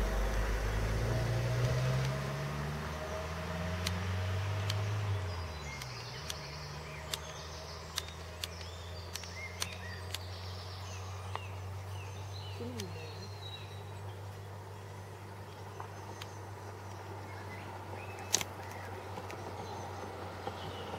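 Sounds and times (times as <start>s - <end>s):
birds chirping: 0.0s - 20.9s
sharp clicks: 1.6s - 2.2s, 3.8s - 4.0s, 4.6s - 4.9s, 5.7s - 10.4s, 18.2s - 19.4s.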